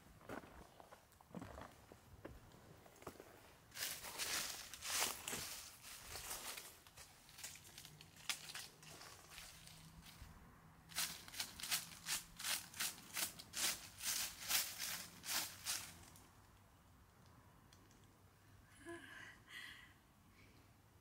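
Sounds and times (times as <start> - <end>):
dry leaves rustling and crackling: 3.7 - 10.2, 10.9 - 16.3.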